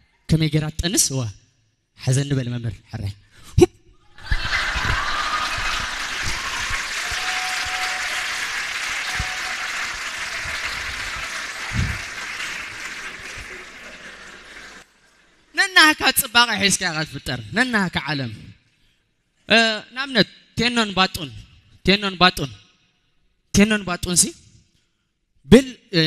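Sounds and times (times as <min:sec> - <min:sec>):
audience laughing: 0:04.1 - 0:06.7, 0:10.6 - 0:14.8
audience applauding: 0:04.2 - 0:15.0.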